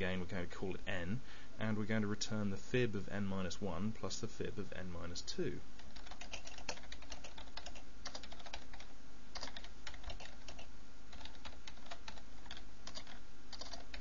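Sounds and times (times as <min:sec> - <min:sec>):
faint low hum: 0:00.0 - 0:14.0
keyboard typing: 0:05.8 - 0:14.0.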